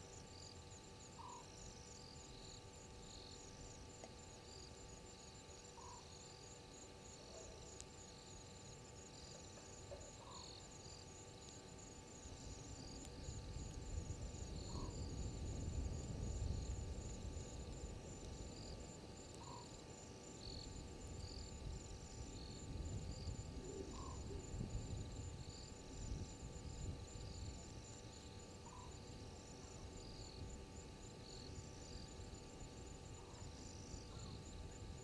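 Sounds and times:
insects trilling: 0:00.0 - 0:35.0.

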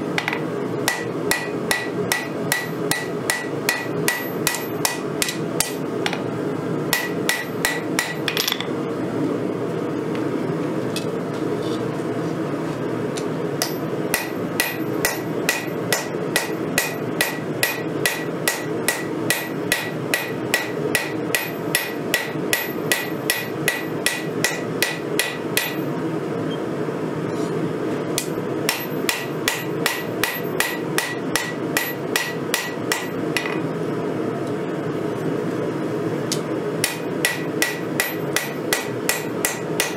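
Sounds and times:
hammer striking hot metal on anvil: 0:00.2 - 0:05.8, 0:06.9 - 0:08.7, 0:13.6 - 0:25.9, 0:28.2 - 0:33.6, 0:36.8 - 0:39.9.

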